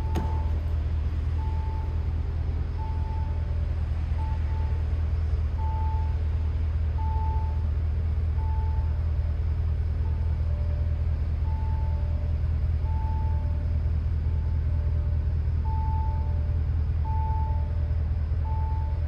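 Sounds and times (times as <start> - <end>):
soft warning chime: 0.0 - 3.6, 4.2 - 6.2
car engine idling: 0.0 - 19.0.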